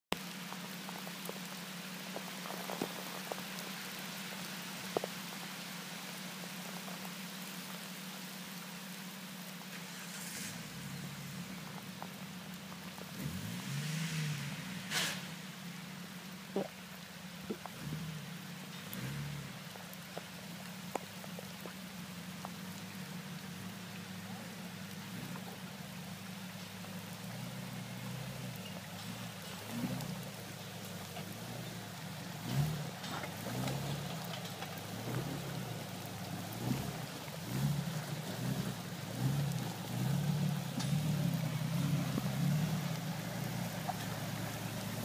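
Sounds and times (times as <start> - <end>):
car engine crawling over rocks: 0.1 - 45.0
raindrops ticking: 0.1 - 45.0
steady rain hissing: 0.1 - 45.0
drips and small taps: 4.8 - 5.2, 16.6 - 18.0, 18.6 - 45.0.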